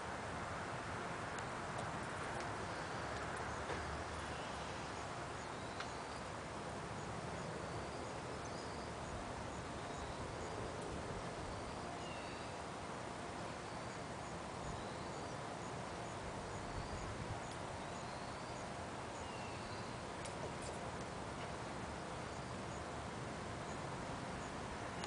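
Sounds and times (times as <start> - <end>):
open-air background hiss: 0.0 - 25.0
small birds chirping: 1.8 - 6.3, 7.0 - 10.8, 11.4 - 12.6, 13.6 - 23.0.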